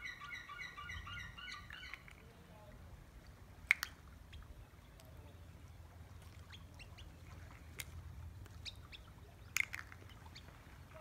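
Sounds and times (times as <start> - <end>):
gulls calling: 0.0 - 2.2
low steady rumble: 2.4 - 11.0.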